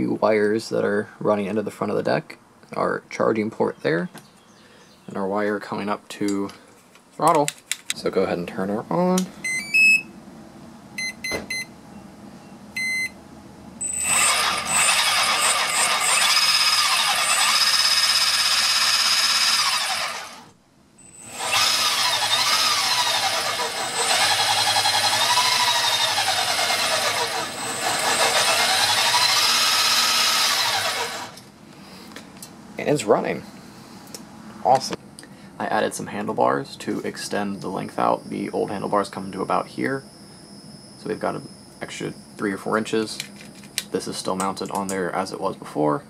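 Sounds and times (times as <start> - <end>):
speed controller beeps: 12.8 - 13.2, 13.8 - 15.1
electric motor whine: 13.8 - 20.5, 21.2 - 31.4.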